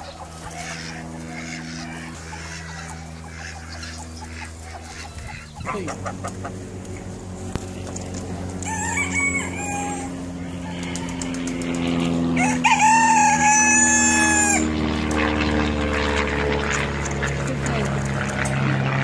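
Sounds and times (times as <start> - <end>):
chickens clucking: 0.0 - 14.6
low hum: 0.0 - 19.0
rooster crowing: 8.5 - 14.8.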